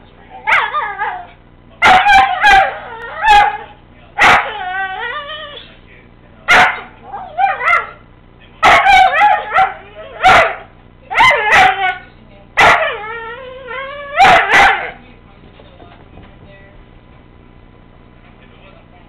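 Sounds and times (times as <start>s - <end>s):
dogs yelping barks and yowls: 0.4s - 5.6s, 6.5s - 8.0s, 8.6s - 12.0s, 12.6s - 15.0s.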